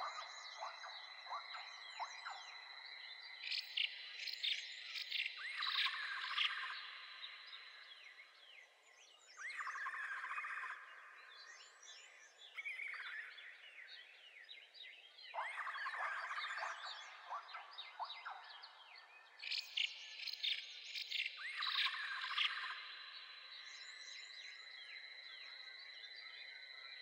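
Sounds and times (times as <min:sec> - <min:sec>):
birds chirping and singing: 0:09.3 - 0:22.9.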